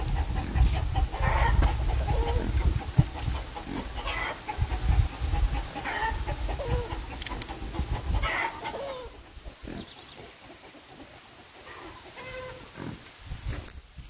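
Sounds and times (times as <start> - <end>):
chickens clucking: 0.0 - 13.6
sharp clicks: 7.2 - 7.6.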